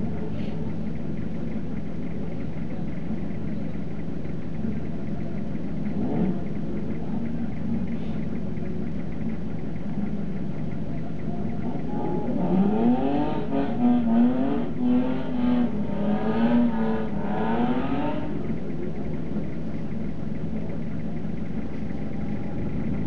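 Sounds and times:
car engine revving from inside: 0:12.0 - 0:18.4.

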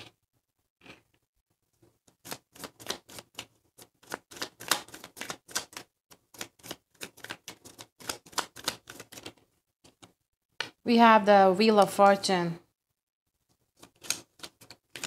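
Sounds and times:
cards being shuffled: 0:02.1 - 0:10.2, 0:13.8 - 0:15.0.

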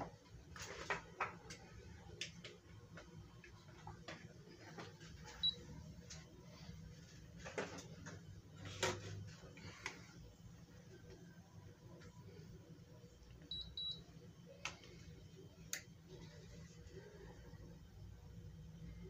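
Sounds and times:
faint low hum: 0:00.0 - 0:19.0
air conditioner beep: 0:05.2 - 0:05.8, 0:13.4 - 0:14.5.

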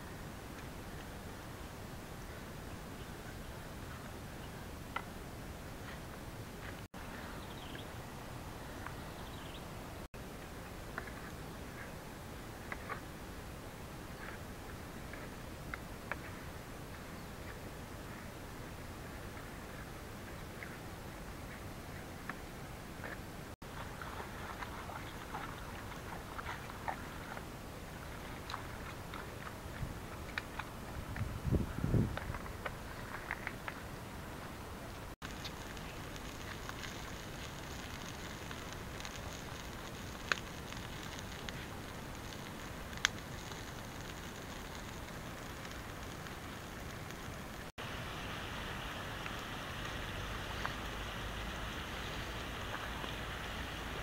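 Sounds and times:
outdoor background hiss: 0:00.0 - 0:54.0
fire crackling: 0:03.6 - 0:54.0
chicken sizzling in a wok: 0:35.2 - 0:54.0.

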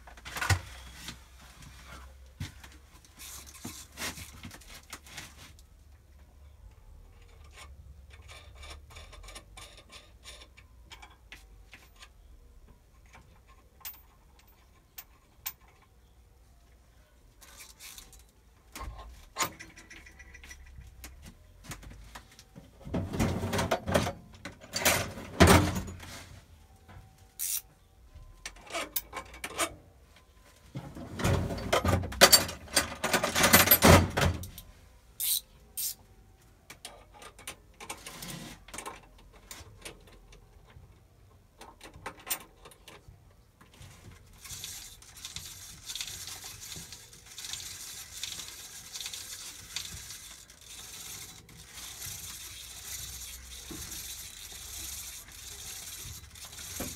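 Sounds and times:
metal tools clinking and rattling: 0:17.4 - 0:21.0, 0:31.2 - 0:34.6.

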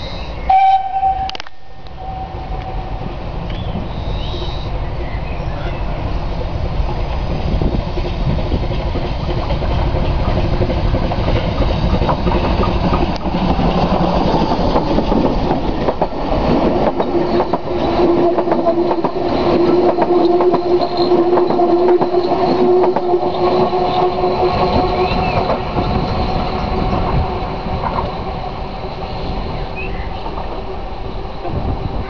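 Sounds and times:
steam locomotive passing: 0:00.0 - 0:32.0
coaches clickety-clack on rails: 0:00.5 - 0:32.0.

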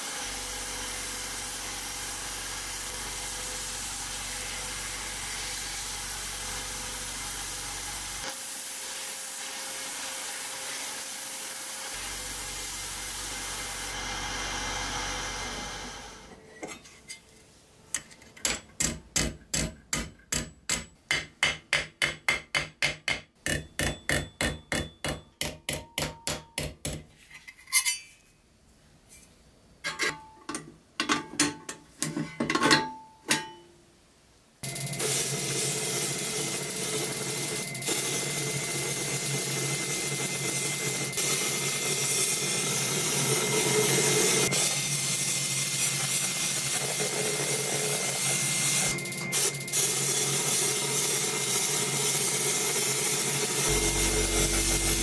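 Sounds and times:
sandblaster hissing: 0:01.3 - 0:15.9, 0:37.8 - 0:55.0
hammer striking steel: 0:18.5 - 0:27.1, 0:53.7 - 0:55.0.

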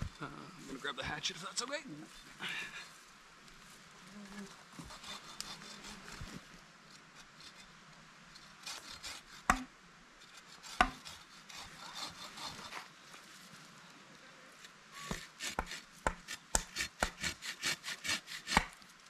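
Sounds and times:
wood rubbing on wooden pole: 0:04.7 - 0:06.4, 0:08.4 - 0:12.9, 0:15.0 - 0:18.8
bow saw rasping strokes: 0:04.7 - 0:07.8, 0:08.4 - 0:13.2, 0:14.6 - 0:18.9
sharp wooden knocks: 0:09.5 - 0:09.7, 0:10.8 - 0:11.1, 0:15.1 - 0:17.3, 0:18.4 - 0:18.7.

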